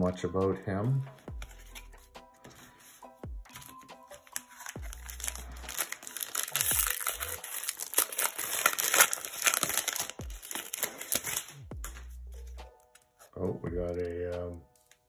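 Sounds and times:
foil wrapper crinkling: 4.2s - 11.6s
foil wrapper tearing: 4.3s - 11.6s.

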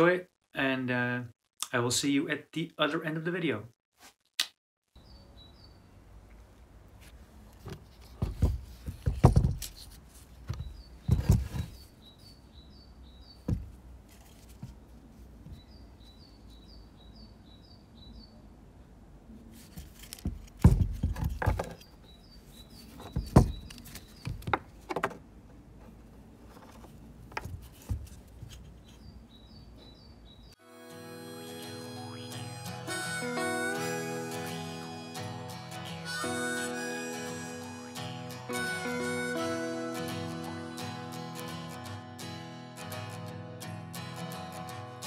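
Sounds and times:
small bird chirping: 5.0s - 5.9s, 10.6s - 13.5s, 28.7s - 30.6s, 31.6s - 33.2s
loud thumps: 13.5s - 13.8s.

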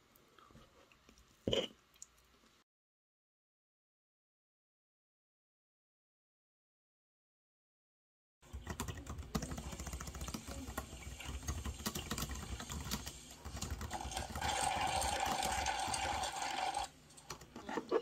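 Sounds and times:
rapid typing on keyboard: 8.4s - 17.7s.

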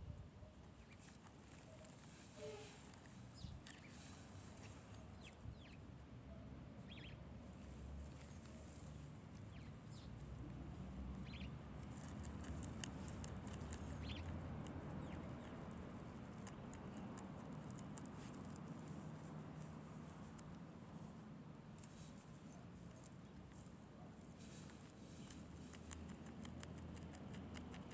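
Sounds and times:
bird chirps: 6.8s - 7.2s, 11.2s - 11.6s
guinea pig crunching: 10.4s - 20.8s, 24.4s - 27.9s.

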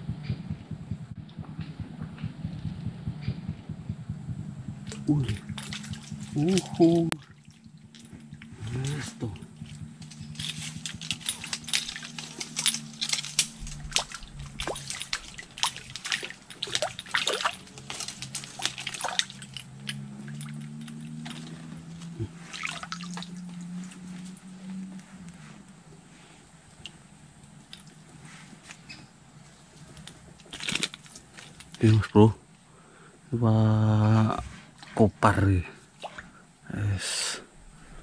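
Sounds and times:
low steady hum: 0.0s - 38.0s
small water splashes and drips: 4.8s - 24.0s.

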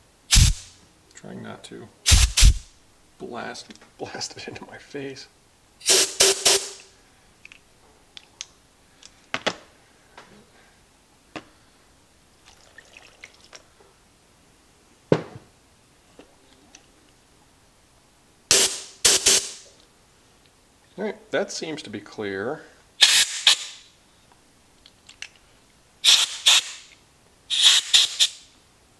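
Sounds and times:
compressed air blasts: 0.3s - 0.8s, 2.0s - 2.7s, 5.8s - 6.9s, 18.5s - 19.7s, 23.0s - 23.8s, 26.0s - 28.5s
water trickling over a lid: 12.4s - 13.6s.

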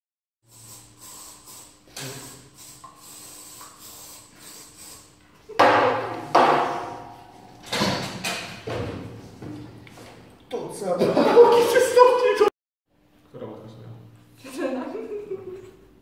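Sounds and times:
aerosol hairspray hissing: 0.5s - 5.1s.

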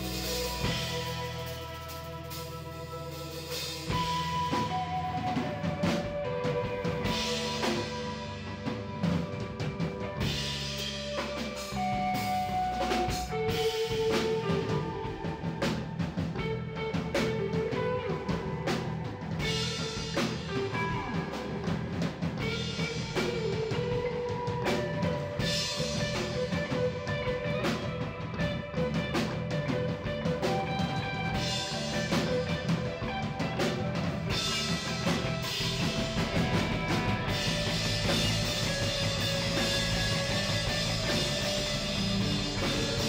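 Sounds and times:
drum kit steady beat: 0.0s - 43.0s
electric bass: 0.0s - 43.0s
electric guitar melody: 0.0s - 43.0s.

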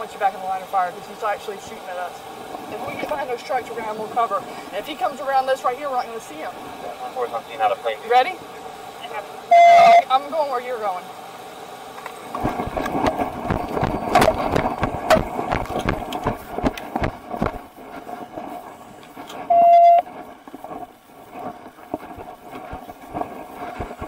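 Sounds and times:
short electronic beep: 9.5s - 10.1s, 19.5s - 20.1s
gear knocking and rustling: 12.3s - 24.0s.

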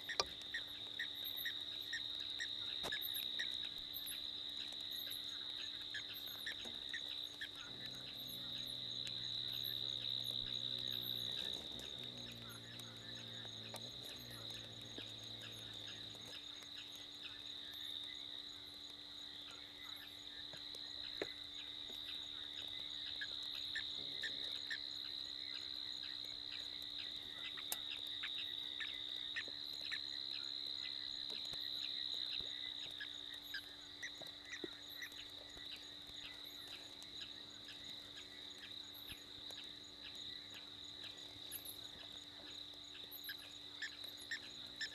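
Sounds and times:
crickets trilling: 0.0s - 44.9s
faint ticks: 0.0s - 44.9s.

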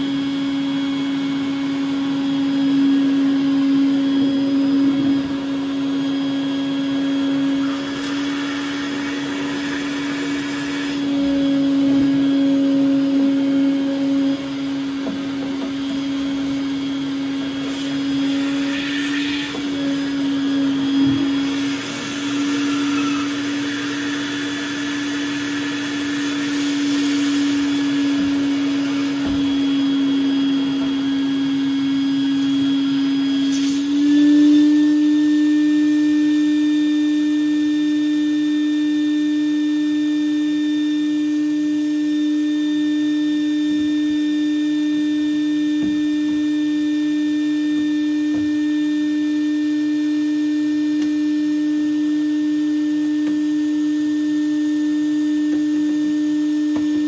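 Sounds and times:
vacuum running: 0.0s - 57.0s.

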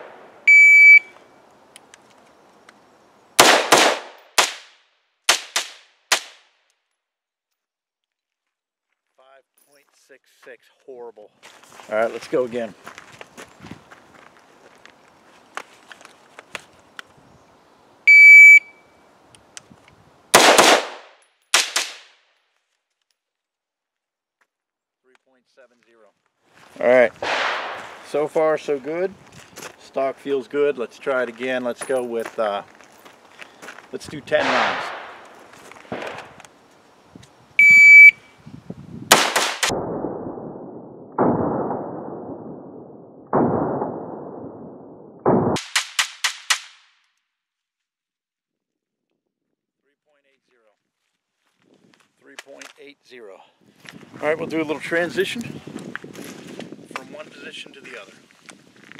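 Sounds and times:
shot timer start beep: 0.5s - 1.1s, 18.1s - 18.7s, 37.6s - 38.2s
rifle shots: 3.4s - 4.7s, 5.3s - 6.4s, 20.3s - 22.1s, 27.2s - 28.2s, 34.3s - 36.4s, 39.1s - 46.8s.

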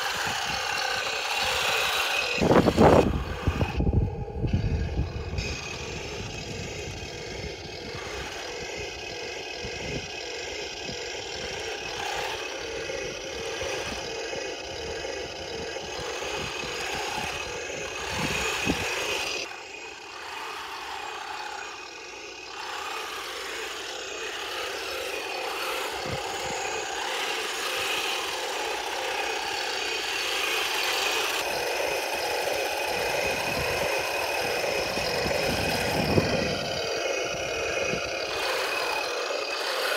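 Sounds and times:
simulated tank engine: 0.0s - 39.9s.

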